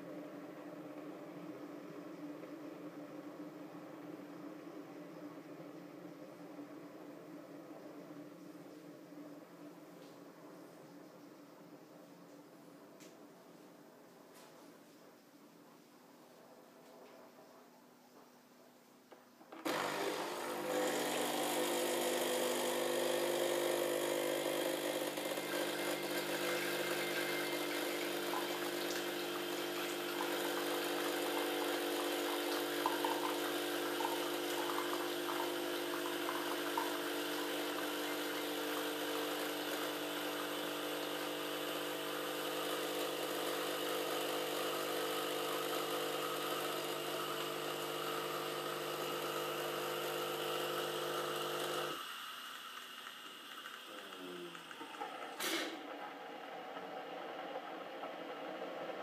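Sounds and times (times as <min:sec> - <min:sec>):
coffee maker pump humming: 0:19.6 - 0:59.0.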